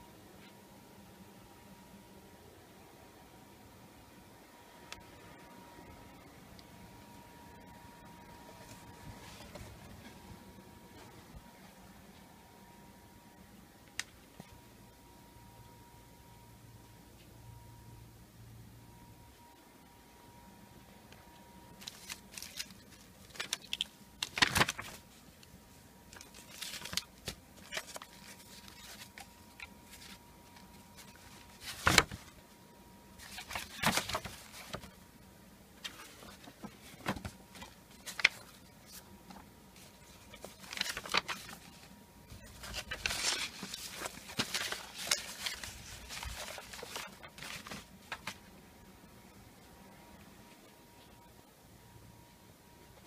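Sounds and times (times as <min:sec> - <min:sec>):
paper rustling and crackling: 0:21.7 - 0:25.4, 0:26.0 - 0:32.5, 0:33.2 - 0:35.0, 0:35.8 - 0:48.5.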